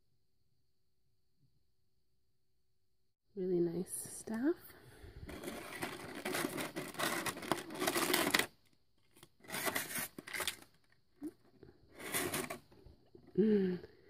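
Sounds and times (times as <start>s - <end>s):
plastic packaging crinkling: 5.3s - 11.0s, 12.0s - 12.7s.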